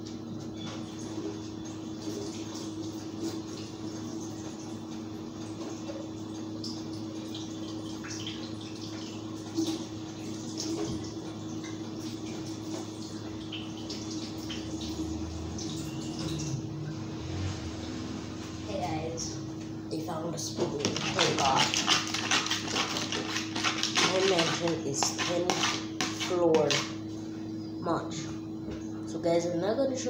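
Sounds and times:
low hum: 14.4s - 29.6s.

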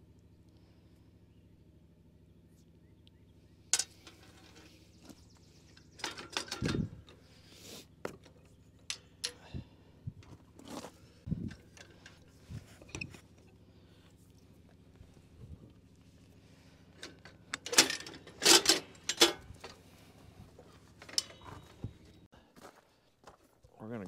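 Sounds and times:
metal tools clinking and clattering: 3.7s - 7.2s, 8.1s - 9.5s, 10.2s - 13.6s, 16.9s - 19.9s, 20.6s - 22.3s.

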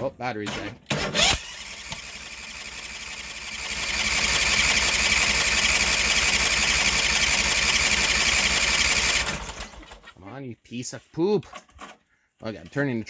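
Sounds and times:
electric starter cranking engine: 0.5s - 10.0s.

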